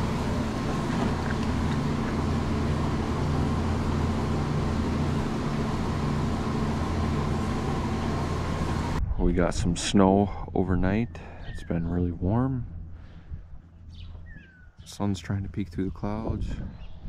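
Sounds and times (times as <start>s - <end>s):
milking units pulsing: 0.0s - 9.0s
vacuum pump running: 0.0s - 9.0s.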